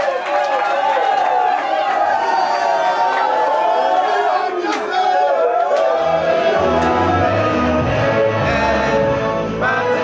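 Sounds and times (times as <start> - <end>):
group of men singing: 5.8 - 10.0
music with low bass line: 6.6 - 10.0.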